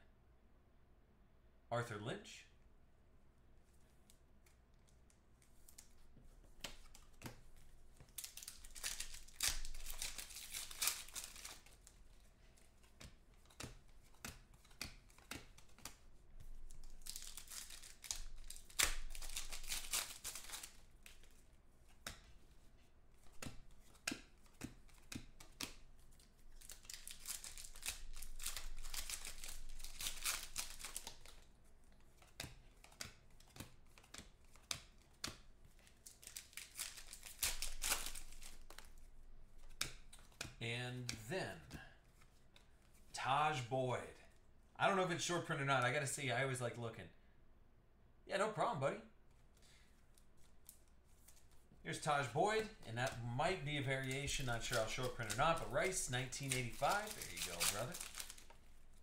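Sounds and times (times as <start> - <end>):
cards clicking and flicking: 5.4 - 43.1, 50.6 - 58.7
card pack wrappers tearing: 8.1 - 12.0, 12.9 - 21.4, 23.3 - 31.5, 35.9 - 39.0, 52.6 - 58.9.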